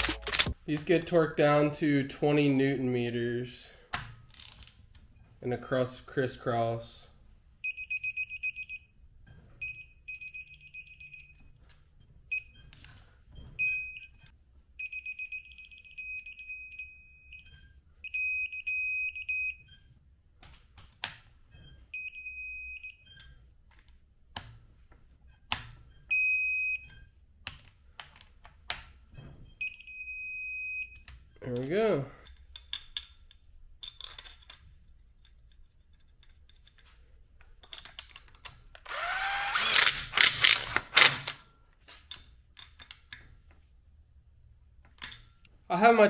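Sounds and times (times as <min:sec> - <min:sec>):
torque wrench beeping: 0:38.9 - 0:41.4.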